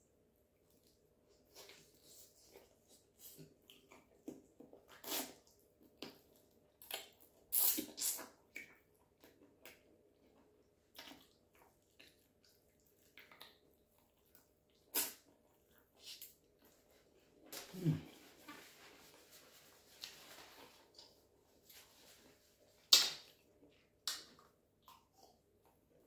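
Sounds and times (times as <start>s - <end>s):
person chewing food: 0.6s - 18.5s, 23.3s - 26.0s
wet lip smacks and clicks: 22.9s - 23.3s, 24.0s - 25.3s.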